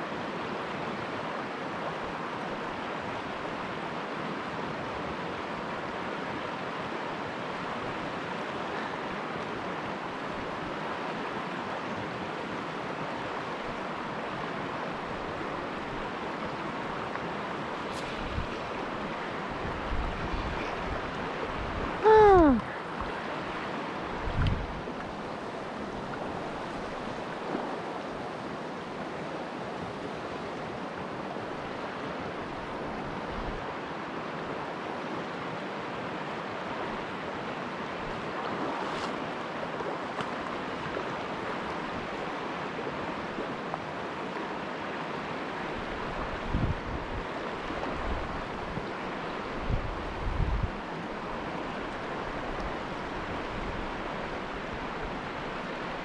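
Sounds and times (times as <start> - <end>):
river flowing over rocks: 0.0 - 56.0
wind on microphone: 17.9 - 23.1, 24.1 - 25.0, 45.9 - 48.9, 49.5 - 51.0.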